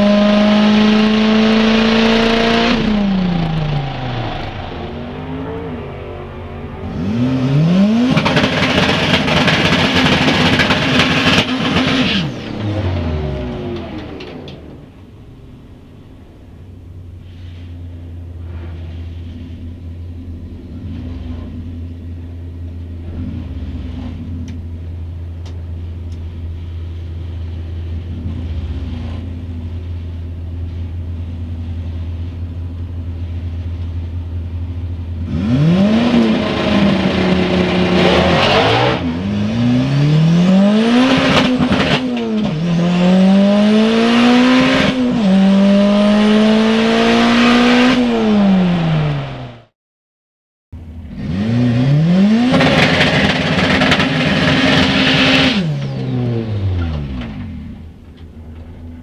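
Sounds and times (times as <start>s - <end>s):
car engine revving through gears: 0.0s - 14.9s, 23.0s - 24.6s, 35.2s - 49.7s, 51.0s - 57.9s
engine throttle blips: 0.0s - 49.7s
car engine idling: 1.1s - 35.3s, 52.6s - 59.0s.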